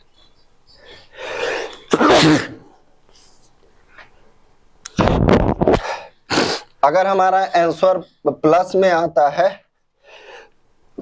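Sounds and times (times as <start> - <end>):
hissing breath in: 0.8 - 1.9, 10.0 - 10.6
man sneezing: 1.5 - 2.8.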